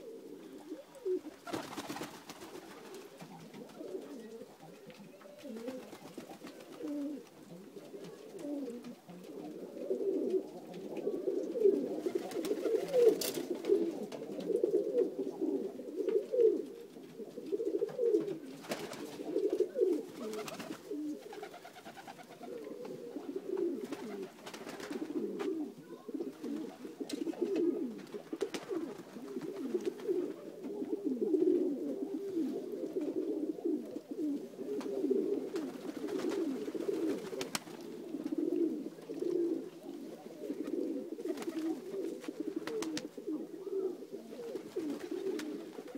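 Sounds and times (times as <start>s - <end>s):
pigeons cooing: 0.0s - 45.9s.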